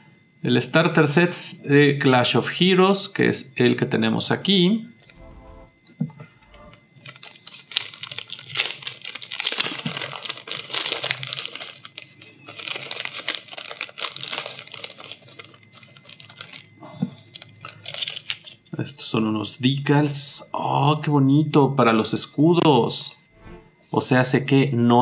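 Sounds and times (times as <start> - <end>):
plastic bag crinkling: 6.5 - 18.8.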